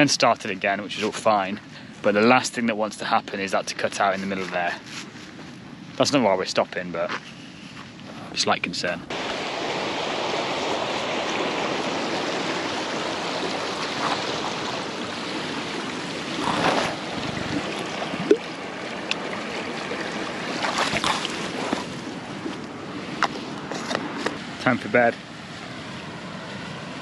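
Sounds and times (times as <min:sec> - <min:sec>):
rushing outdoor noise: 0:00.0 - 0:27.0
tent rustles and knocks: 0:16.2 - 0:17.7, 0:20.5 - 0:22.6.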